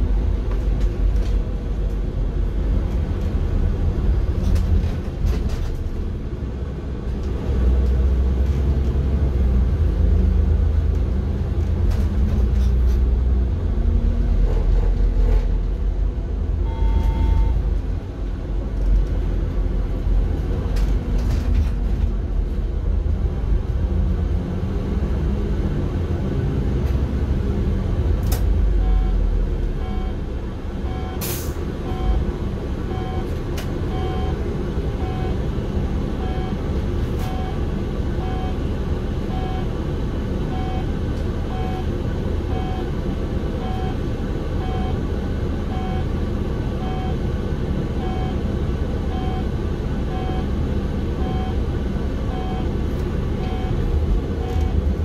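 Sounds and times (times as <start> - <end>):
bus engine rumble: 0.0 - 55.0
air brake hiss: 31.2 - 31.6.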